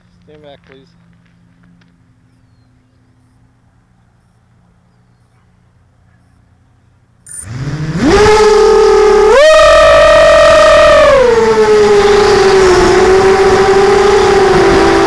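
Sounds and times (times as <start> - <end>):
drone motors whining: 7.3 - 15.0.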